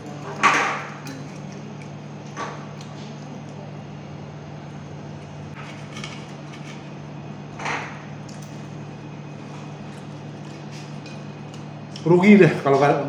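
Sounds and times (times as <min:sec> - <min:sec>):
steady low hum: 0:00.0 - 0:13.0
knife and fork scraping metal plate: 0:05.6 - 0:06.9.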